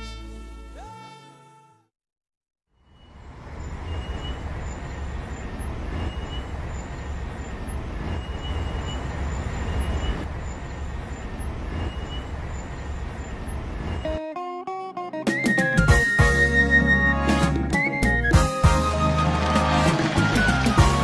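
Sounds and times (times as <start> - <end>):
rumbling background noise: 3.3 - 14.1.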